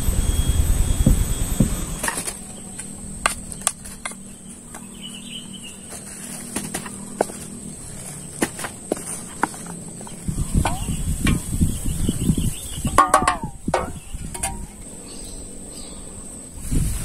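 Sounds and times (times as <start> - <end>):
loud rushing rumble: 0.0 - 2.4
tubers dropping onto leaf: 2.0 - 4.2, 5.8 - 10.9
spoon knocking metal saucepan: 12.9 - 14.6.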